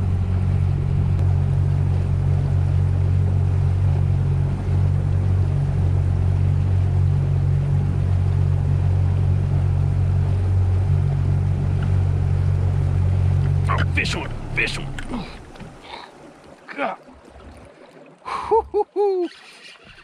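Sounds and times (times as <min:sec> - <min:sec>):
boat engine droning: 0:00.0 - 0:20.0
wind and water rushing: 0:00.0 - 0:20.0.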